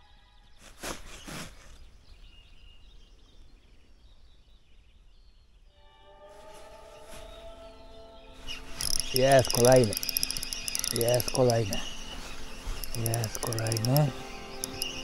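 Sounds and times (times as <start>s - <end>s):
faint high bird chirps: 7.0s - 15.0s.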